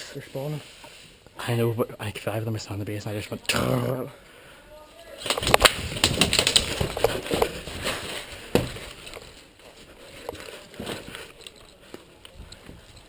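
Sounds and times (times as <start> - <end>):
rifle and kit rattling: 5.2 - 9.5, 10.1 - 13.0.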